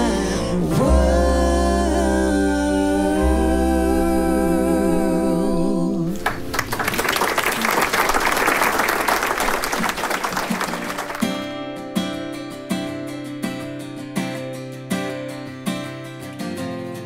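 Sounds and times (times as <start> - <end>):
women singing in harmony: 0.0 - 6.2
audience applause: 6.2 - 11.4
acoustic guitar strumming: 10.5 - 17.0.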